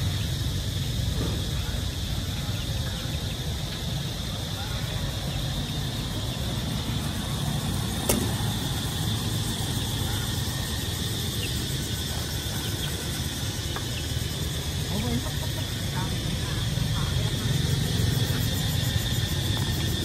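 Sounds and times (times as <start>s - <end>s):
street traffic rumble: 0.0s - 20.0s
sharp click: 8.1s - 8.4s.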